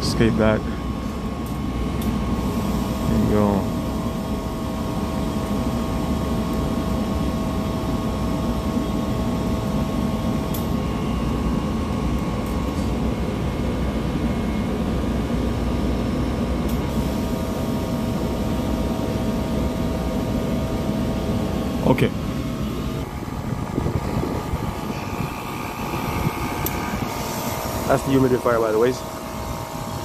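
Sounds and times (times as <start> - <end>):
air conditioner hum: 0.0 - 30.0
faint whine: 16.4 - 30.0.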